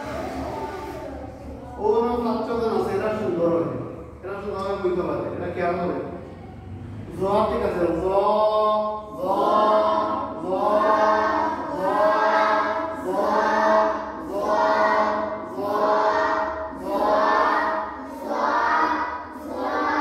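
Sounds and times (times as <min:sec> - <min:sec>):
children chanting in unison: 0:08.2 - 0:20.0.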